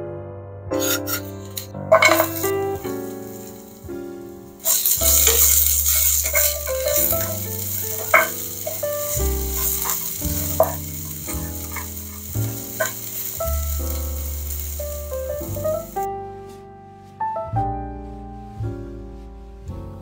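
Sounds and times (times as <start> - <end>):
background piano music: 0.0 - 20.0
stir-fry sizzling in a hot pan: 0.8 - 4.0, 4.6 - 16.1.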